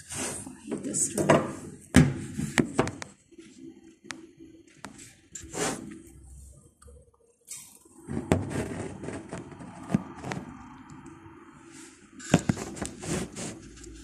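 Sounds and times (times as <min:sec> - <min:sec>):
hand rubbing on microphone: 0:12.3 - 0:14.0.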